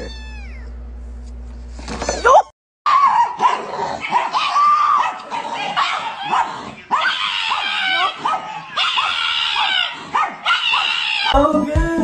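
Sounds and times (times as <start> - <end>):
dog whining and yelping: 2.2 - 11.4.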